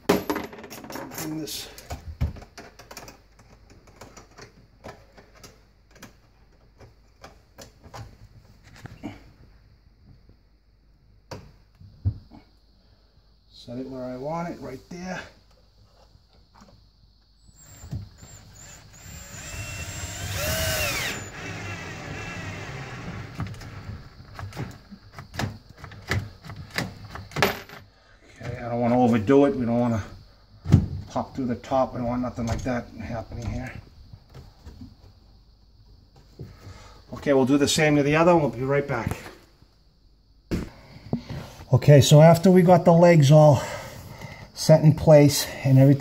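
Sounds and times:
cordless drill driving screw: 17.6s - 23.4s.

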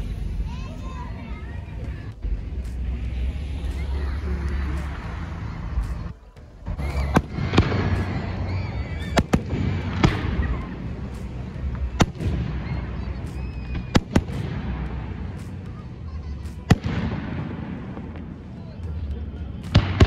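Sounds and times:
low rumble: 0.0s - 20.0s
firework shells bursting: 3.7s - 18.6s.

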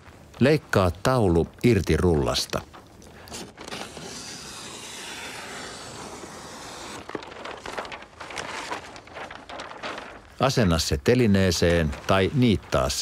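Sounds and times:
paper rustling: 0.0s - 13.0s
paper tearing: 3.3s - 10.4s.

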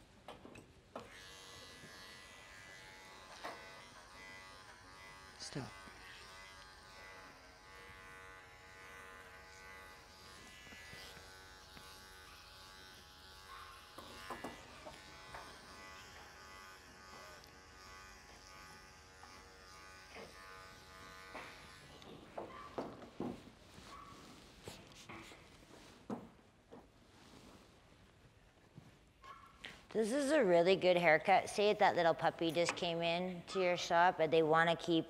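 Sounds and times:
electric clipper buzzing: 0.9s - 22.5s.

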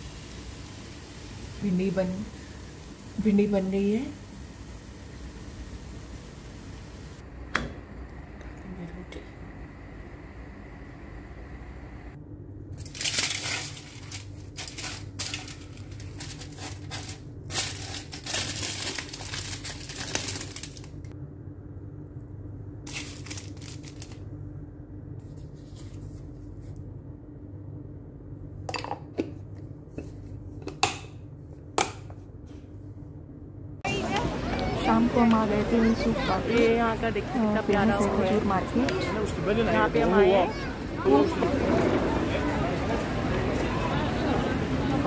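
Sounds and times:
steady low hum: 0.0s - 18.5s, 19.4s - 45.0s
aluminium foil crinkling and tearing: 12.8s - 21.1s, 22.8s - 24.3s.

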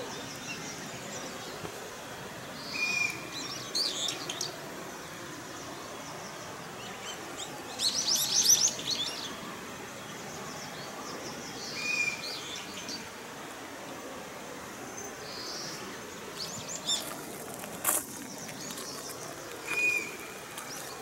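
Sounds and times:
faint outdoor hiss: 0.0s - 21.0s
songbirds chirping: 0.0s - 21.0s
bird whistle: 19.7s - 20.2s.

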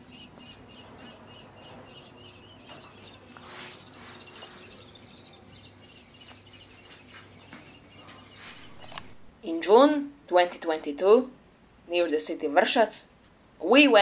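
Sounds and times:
young kestrels chirping: 0.0s - 9.3s.

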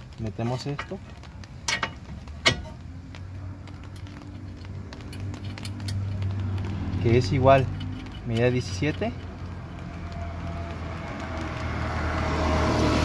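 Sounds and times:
sharp metallic clicks: 0.6s - 11.7s.

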